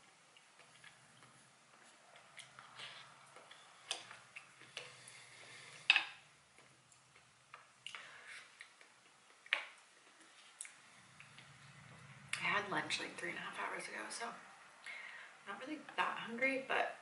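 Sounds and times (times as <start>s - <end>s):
chewing and mouth sounds: 0.0s - 12.4s.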